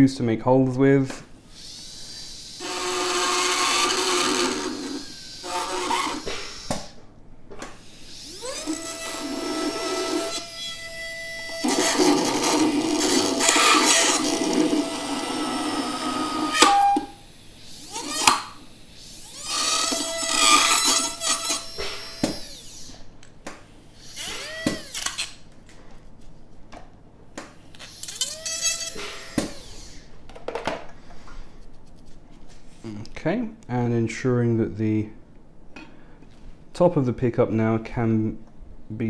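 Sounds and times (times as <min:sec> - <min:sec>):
dental handpiece grinding plastic: 0:02.0 - 0:06.6, 0:11.6 - 0:16.7, 0:19.2 - 0:22.9, 0:27.7 - 0:30.0.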